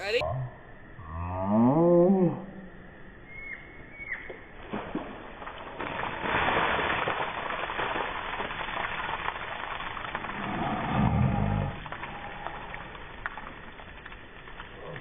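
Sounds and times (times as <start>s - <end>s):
water splashing from bucket: 4.6s - 10.8s
low rumble: 10.3s - 15.0s.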